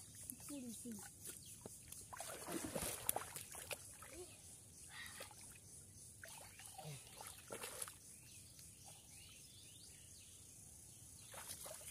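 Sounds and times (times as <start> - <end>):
splashing in shallow water: 0.3 - 4.3, 6.2 - 8.0, 11.2 - 11.9.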